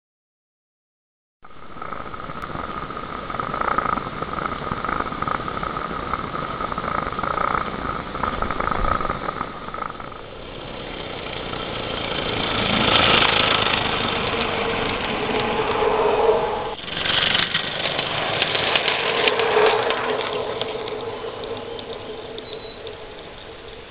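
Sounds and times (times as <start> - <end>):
steam locomotive running past: 10.4 - 23.9
steam locomotive hissing: 10.6 - 23.9.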